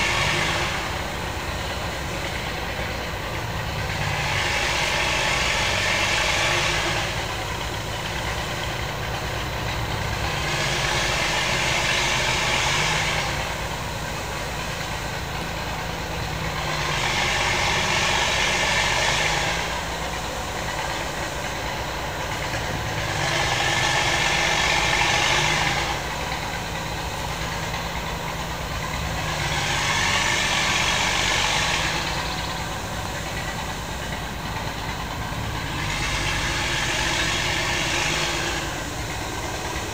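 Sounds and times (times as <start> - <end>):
engine idling: 0.0 - 39.9
hiss: 0.0 - 39.9.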